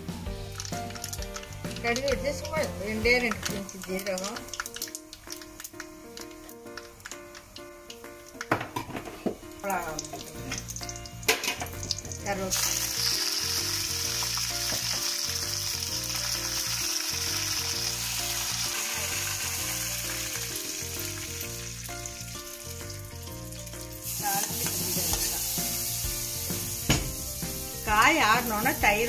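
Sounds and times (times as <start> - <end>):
spices sizzling in hot oil: 0.0 - 29.0
sharp clicks in oil: 3.3 - 8.5.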